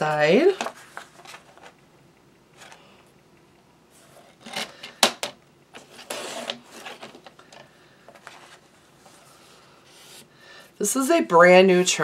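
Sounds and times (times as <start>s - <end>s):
paper rustling: 0.5s - 1.8s, 5.8s - 7.3s, 8.1s - 10.3s.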